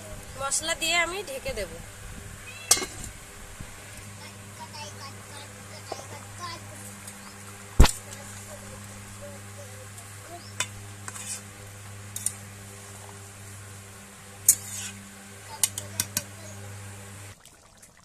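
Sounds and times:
food sizzling: 0.0s - 17.8s
metal spatula scraping pan: 10.6s - 12.5s, 14.4s - 15.1s.

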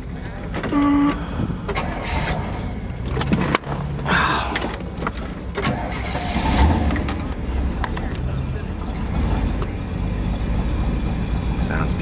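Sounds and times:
handling noise: 0.0s - 8.4s
steady low rumble: 0.0s - 12.0s
keys jangling and clicking: 4.5s - 5.7s, 6.6s - 7.4s.

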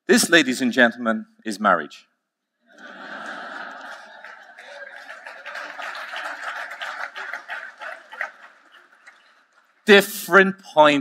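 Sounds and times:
large audience laughing: 2.7s - 9.4s
audience clapping: 2.8s - 10.1s.

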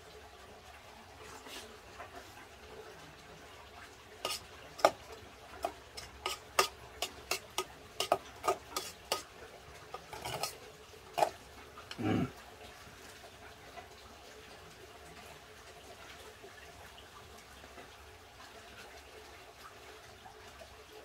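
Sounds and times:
spoon clinking against pot: 4.3s - 5.0s, 5.6s - 9.3s, 10.0s - 10.6s.

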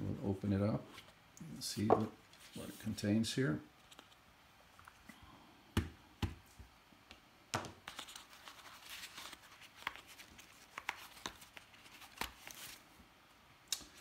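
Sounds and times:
card and paper rustling: 3.8s - 4.2s, 7.8s - 12.8s.

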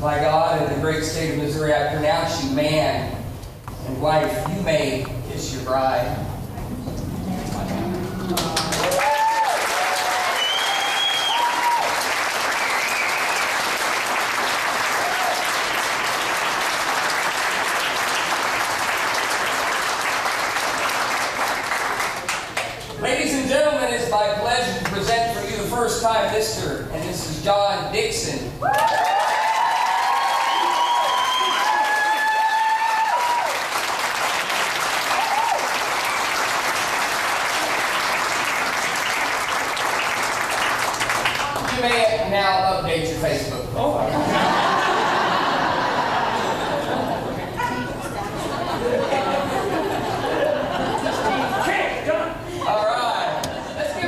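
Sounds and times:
audience applauding: 8.2s - 22.8s, 28.7s - 42.1s
voices cheering: 8.7s - 13.4s, 14.9s - 15.8s, 28.6s - 33.8s, 35.0s - 35.9s
short whistle: 10.4s - 11.4s.

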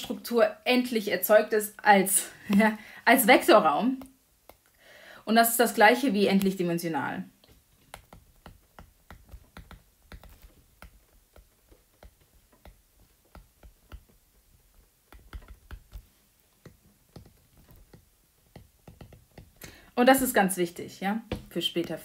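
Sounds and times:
stylus tapping on glass screen: 7.5s - 19.7s.

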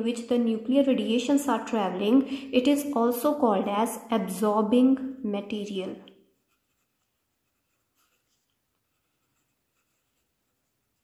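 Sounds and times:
marker pen scratching on paper: 6.3s - 11.0s.

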